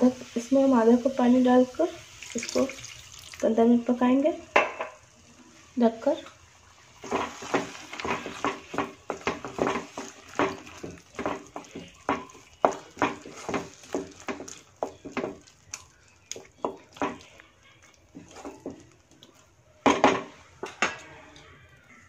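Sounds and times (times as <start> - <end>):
wooden spatula scraping pan: 7.0 - 14.6.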